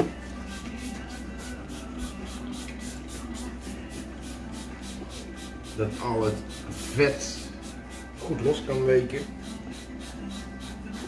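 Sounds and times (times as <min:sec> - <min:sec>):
faint music: 0:00.0 - 0:11.0
spray bottle squirting: 0:00.6 - 0:08.0.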